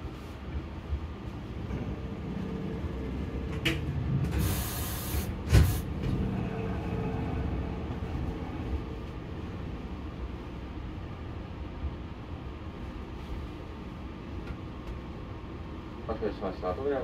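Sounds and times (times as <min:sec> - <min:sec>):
electric train rumble: 0:00.0 - 0:17.0
air hiss: 0:04.4 - 0:05.9.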